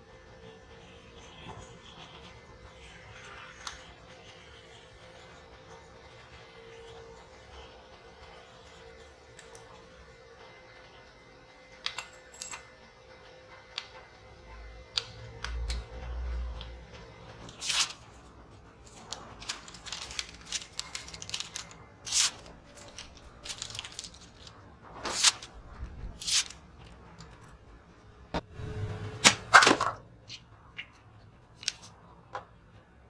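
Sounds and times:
paper sliced by blade: 0:17.5 - 0:18.0, 0:19.0 - 0:26.6.

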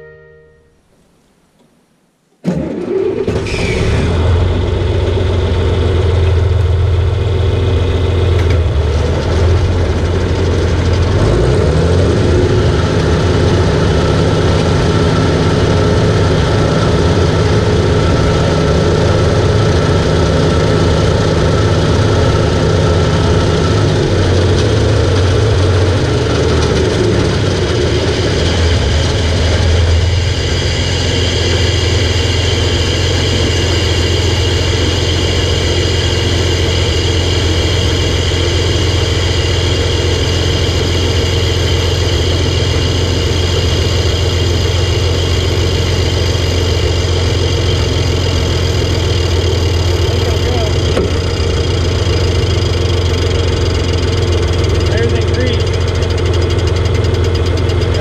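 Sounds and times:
tractor engine running: 0:02.4 - 0:58.0
mower reel turning: 0:13.4 - 0:58.0.

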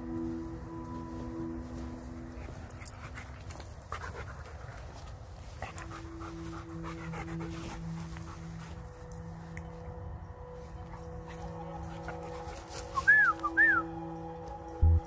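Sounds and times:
steps rustling through leaves: 0:00.0 - 0:15.0
dog panting: 0:02.4 - 0:09.0.

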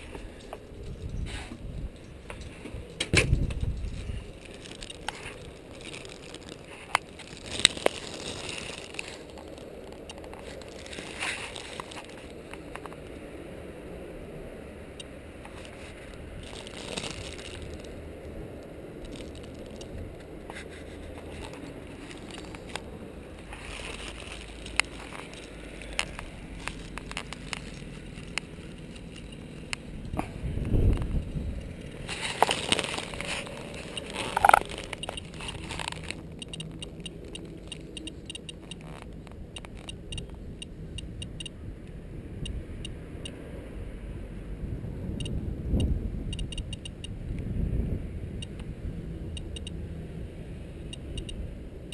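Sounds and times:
plastic bag crinkling: 0:00.0 - 0:12.4, 0:15.6 - 0:18.0, 0:19.0 - 0:20.0, 0:20.6 - 0:29.7, 0:31.0 - 0:39.2
sharp clicks: 0:33.1 - 0:41.5, 0:45.2 - 0:47.2, 0:48.4 - 0:48.7, 0:49.4 - 0:49.8
geiger counter ticking fast: 0:36.4 - 0:38.8, 0:39.6 - 0:41.6, 0:45.2 - 0:47.2, 0:49.4 - 0:49.8.

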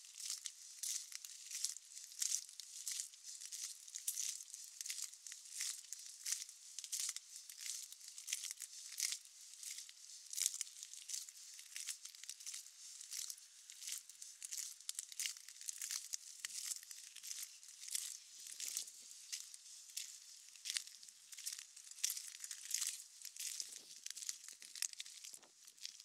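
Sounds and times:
footsteps on wet ground: 0:10.4 - 0:25.5.

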